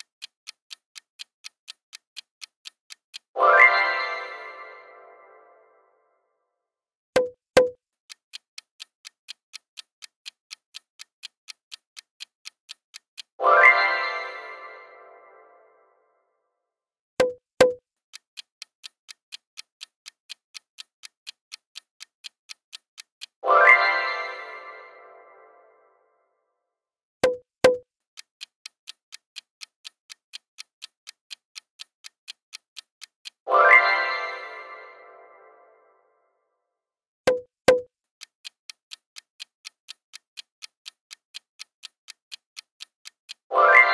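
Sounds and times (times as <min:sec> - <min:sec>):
clock ticking: 0:00.0 - 0:05.0, 0:07.2 - 0:15.4, 0:17.2 - 0:25.4, 0:27.2 - 0:35.4, 0:37.3 - 0:43.9
sharp clicks: 0:07.2 - 0:13.8, 0:17.2 - 0:23.4, 0:27.2 - 0:33.4, 0:37.3 - 0:43.5.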